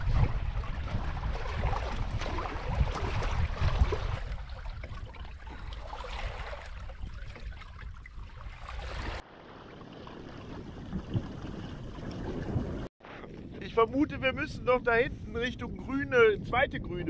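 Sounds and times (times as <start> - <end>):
water splashing along hulls: 0.0 - 13.2.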